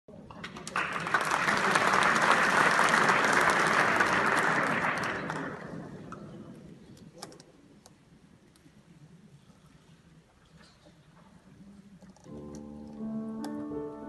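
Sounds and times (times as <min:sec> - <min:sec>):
audience applauding: 0:00.5 - 0:05.9.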